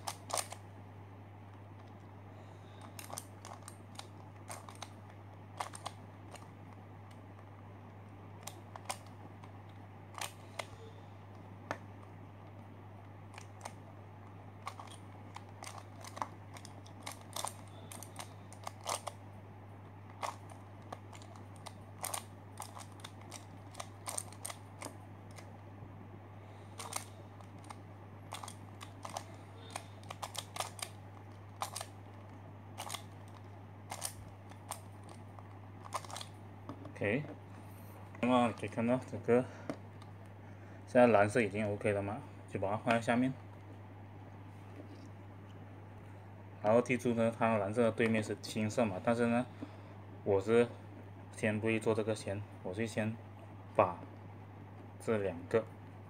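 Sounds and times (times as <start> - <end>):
plastic puzzle clicking: 2.9 - 4.9, 14.6 - 19.2, 20.2 - 25.4, 26.8 - 31.0, 31.6 - 31.9, 32.8 - 35.2, 35.8 - 36.3.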